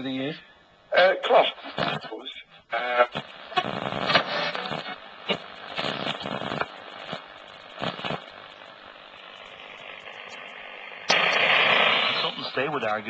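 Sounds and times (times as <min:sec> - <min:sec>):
radio crackle: 0:00.0 - 0:13.0
radio static hiss: 0:00.0 - 0:13.0
radio station audio: 0:00.0 - 0:13.0.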